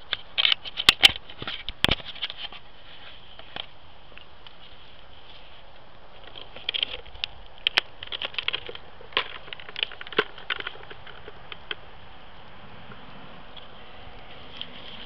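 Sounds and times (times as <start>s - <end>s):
camera handling clicks and rustles: 0.0s - 11.8s.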